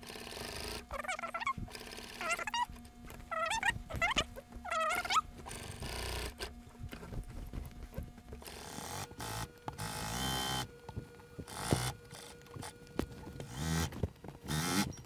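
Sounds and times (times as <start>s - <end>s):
sewing machine stitching: 0.0s - 2.7s.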